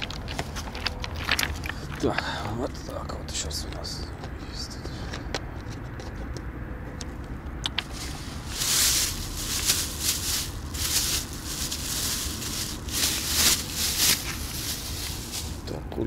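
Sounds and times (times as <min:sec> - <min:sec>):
plastic bags crinkling: 0:07.8 - 0:15.7.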